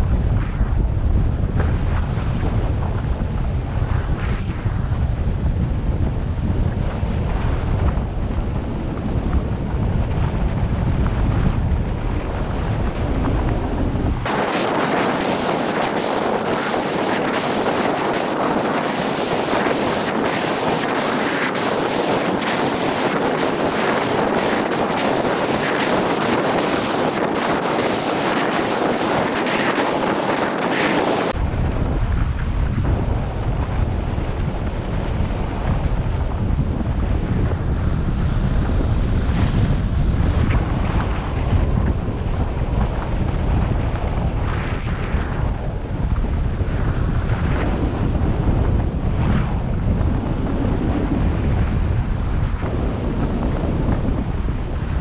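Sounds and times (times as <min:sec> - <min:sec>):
wind buffeting microphone: 0:00.0 - 0:55.0
high hissing rush: 0:14.3 - 0:31.4.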